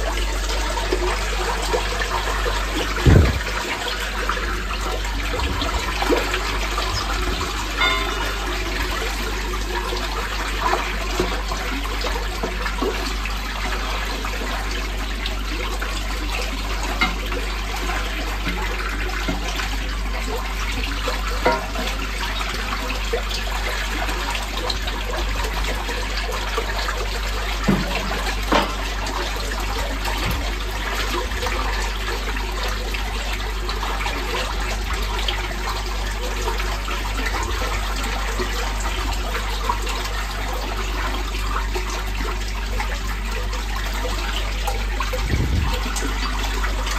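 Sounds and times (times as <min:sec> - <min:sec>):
sewage rushing and gurgling: 0:00.0 - 0:46.9
short knocks: 0:03.0 - 0:03.6.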